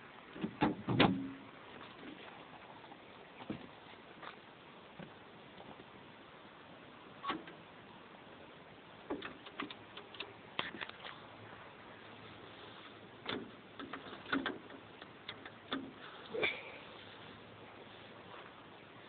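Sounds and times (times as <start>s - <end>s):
light clicks and knocks on controls: 13.2s - 16.1s.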